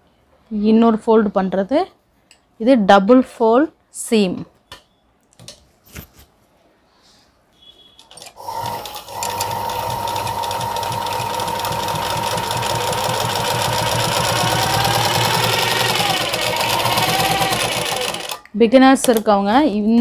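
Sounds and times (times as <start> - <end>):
sewing machine stitching: 8.1 - 18.4.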